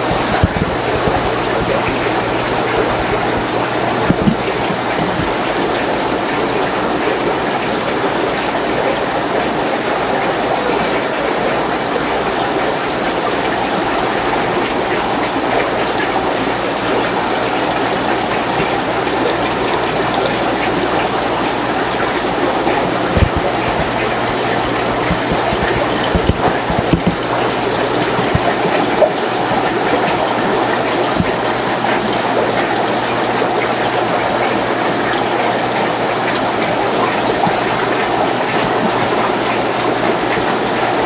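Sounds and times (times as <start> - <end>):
aquarium filters rushing and bubbling: 0.0 - 41.0.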